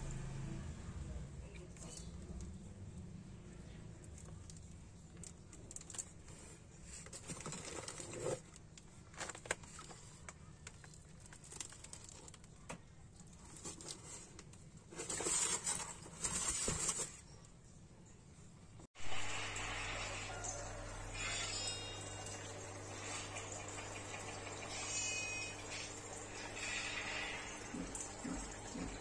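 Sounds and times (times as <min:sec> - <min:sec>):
plastic bags rustling and crinkling: 0:04.2 - 0:17.3.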